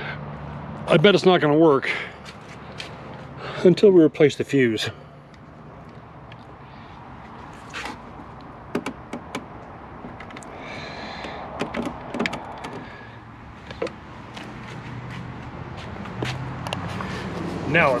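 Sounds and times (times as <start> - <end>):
sharp plastic clicks and knocks: 8.7 - 10.5, 11.2 - 12.9.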